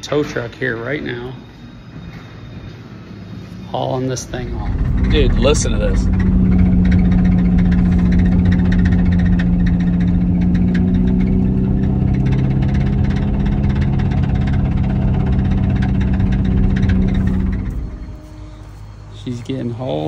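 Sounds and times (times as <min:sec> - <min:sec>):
vehicle interior drone: 0:02.5 - 0:20.0
lower hum: 0:04.1 - 0:20.0
light rattles: 0:04.3 - 0:20.0.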